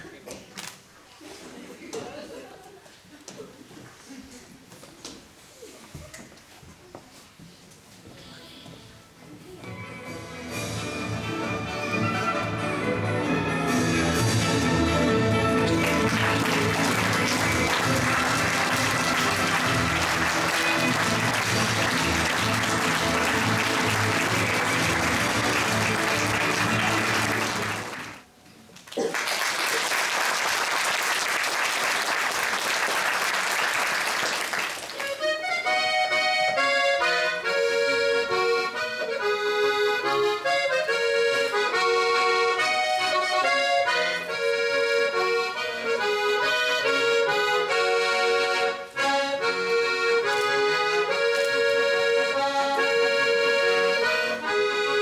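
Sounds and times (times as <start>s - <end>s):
music: 9.4s - 28.2s, 35.0s - 55.0s
piano accordion solo: 10.0s - 28.0s, 35.1s - 55.0s
audience applause: 15.4s - 28.3s, 28.9s - 35.2s.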